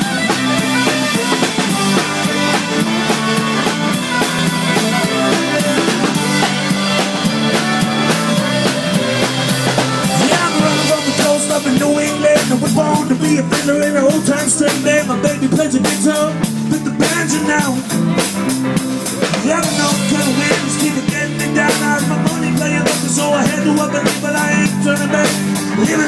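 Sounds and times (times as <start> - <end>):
sustained pitched instruments: 0.0 - 11.8
drum kit beat: 0.0 - 26.0.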